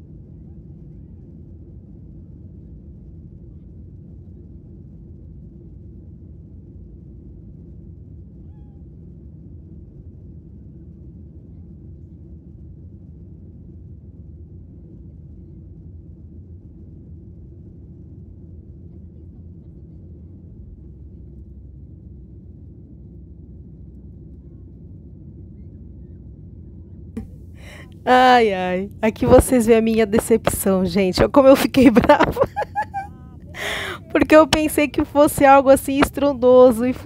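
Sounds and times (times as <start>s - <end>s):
airliner cabin rumble: 27.6s - 37.0s.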